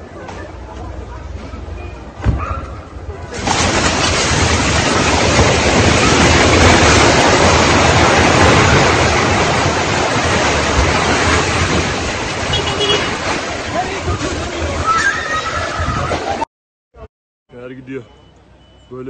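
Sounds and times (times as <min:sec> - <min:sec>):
thud: 0:02.2 - 0:02.6
rushing of falling debris: 0:03.2 - 0:16.4.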